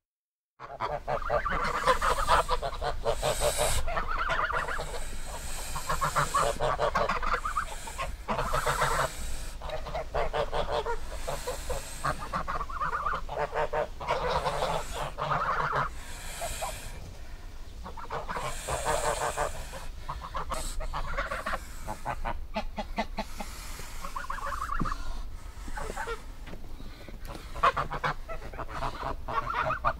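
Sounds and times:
geese honking: 0.6 - 29.9.

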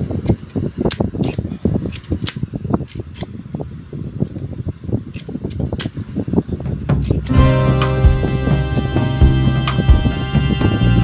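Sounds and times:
steady low rumble: 2.5 - 11.0.

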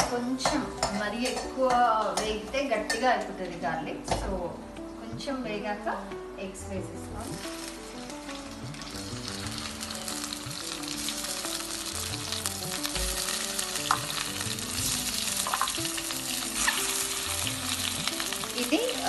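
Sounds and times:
oil sizzling in a pan: 7.1 - 19.0.

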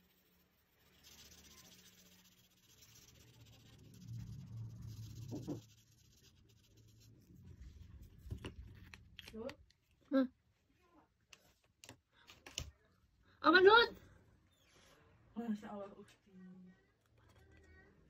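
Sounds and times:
marker rubbing on paper: 0.0 - 7.5.

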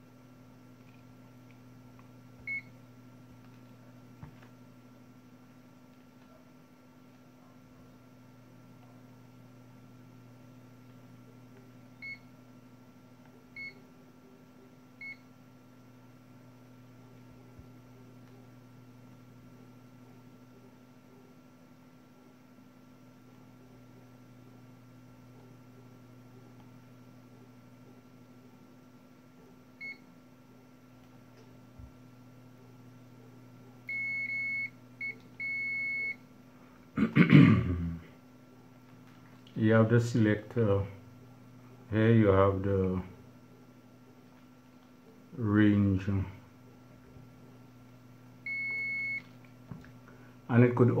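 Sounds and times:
steady low hum: 0.0 - 51.0
multimeter continuity buzzer beeps: 2.4 - 2.8, 12.0 - 12.3, 13.6 - 13.8, 15.0 - 15.3, 29.8 - 30.1, 33.9 - 36.2, 48.4 - 49.3
multimeter short high beeps: 48.5 - 49.3.

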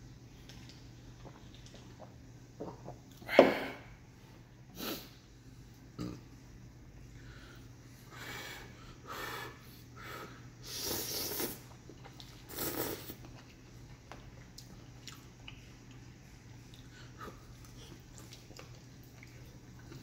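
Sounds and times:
noodles being slurped: 10.7 - 13.4
chewing with wet clicks: 13.2 - 20.0.

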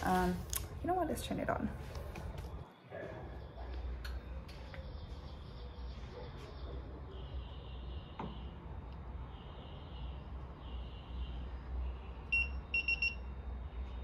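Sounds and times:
electronic beeps: 12.3 - 13.3.

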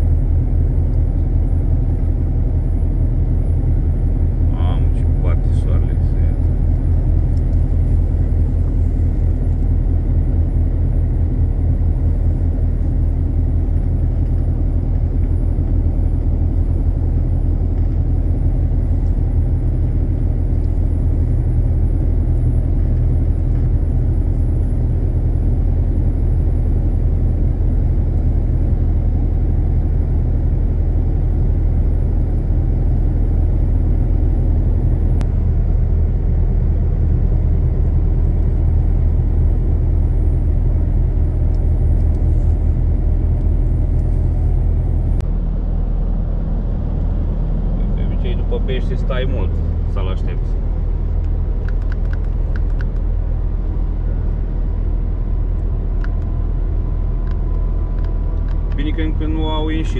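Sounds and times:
truck engine and road noise: 0.0 - 59.9.

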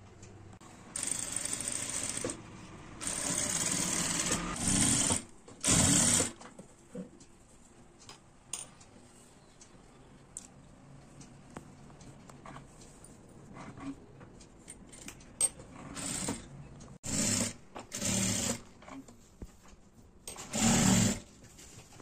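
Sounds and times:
sewing machine stitching: 0.9 - 2.4, 3.0 - 6.4, 15.7 - 19.0, 20.3 - 21.3.

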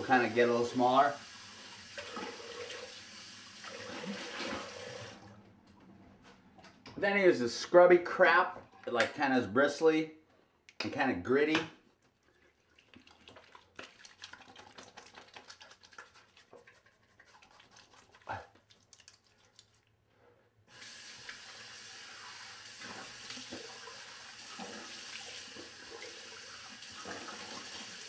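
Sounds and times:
tap water running into sink: 1.1 - 5.2, 20.8 - 28.0
water splashing: 12.3 - 19.3
hands rubbing scrub on skin: 12.8 - 19.9.

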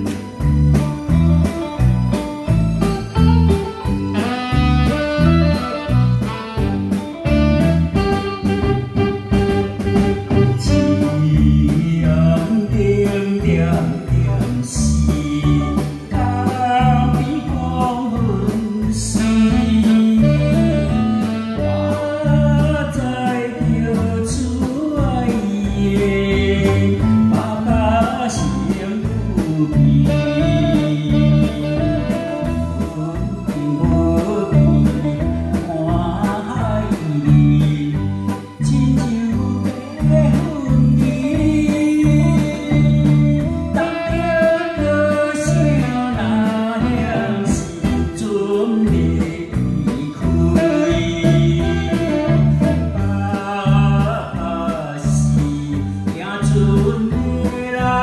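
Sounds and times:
saxophone: 0.0 - 12.1, 18.8 - 24.0, 28.4 - 54.6
electric guitar: 0.0 - 58.0
steady bass beat: 0.0 - 58.0
man singing through microphone: 7.8 - 58.0.

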